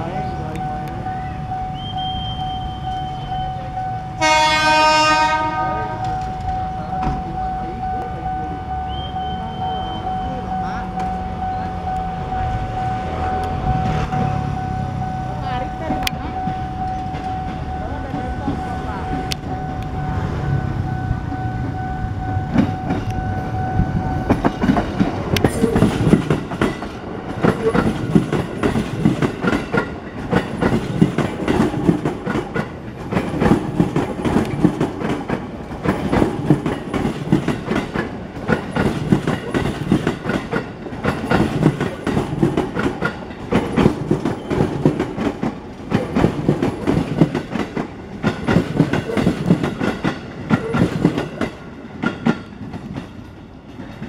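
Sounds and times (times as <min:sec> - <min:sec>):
train horn: 0:04.2 - 0:06.3
train wheels clickety-clack: 0:15.6 - 0:20.0, 0:22.4 - 0:54.0.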